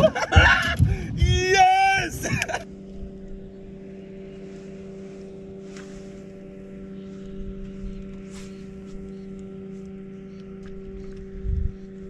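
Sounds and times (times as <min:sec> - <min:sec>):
boat motor humming: 0:00.0 - 0:12.0.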